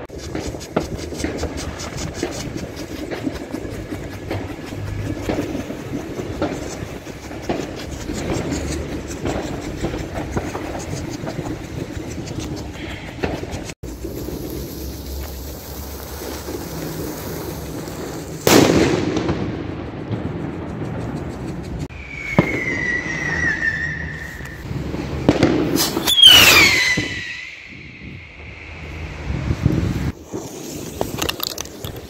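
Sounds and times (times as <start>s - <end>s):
firework crack: 0.0s - 32.0s
firework whistles: 12.8s - 19.7s, 21.9s - 32.0s
firework bang: 16.2s - 20.3s, 22.2s - 23.8s, 24.8s - 28.4s.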